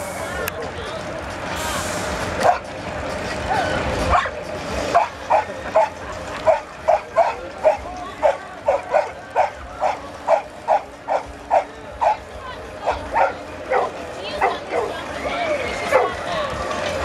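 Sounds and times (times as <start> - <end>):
dog barking: 2.4 - 2.6, 5.0 - 5.9, 6.5 - 12.2, 12.8 - 14.9.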